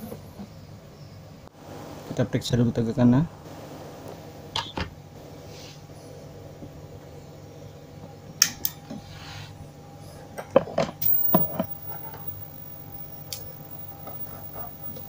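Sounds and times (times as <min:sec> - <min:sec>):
steady low hum: 0:11.0 - 0:15.0.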